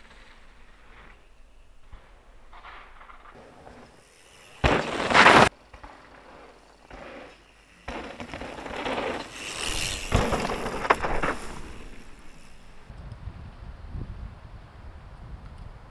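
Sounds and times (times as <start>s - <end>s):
bike tyres crunching on dirt: 0.0s - 12.9s
sharp knocks from bike: 4.5s - 12.6s
bike hub ratchet clicking: 7.4s - 12.9s.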